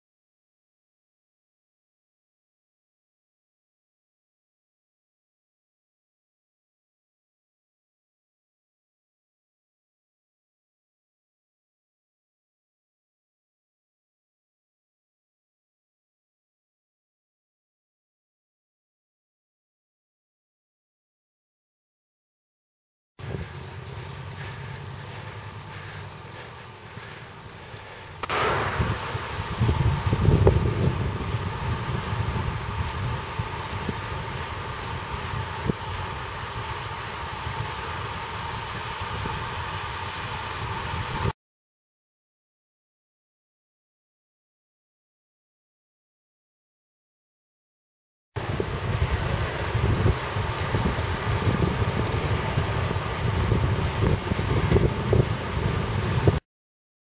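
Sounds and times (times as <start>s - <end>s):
road rumble: 23.2s - 41.3s, 48.4s - 56.4s
wind buffeting microphone: 23.2s - 41.3s, 48.4s - 56.4s.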